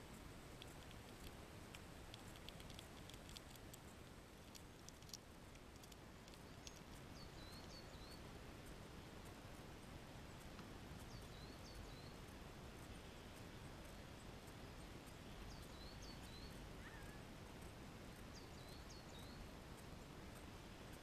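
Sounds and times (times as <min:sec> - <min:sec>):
squirrel nibbling peanuts: 0:00.0 - 0:19.0
low hiss: 0:00.0 - 0:21.0
faint high wavering chirp: 0:06.4 - 0:08.3, 0:11.0 - 0:12.2, 0:14.7 - 0:19.5.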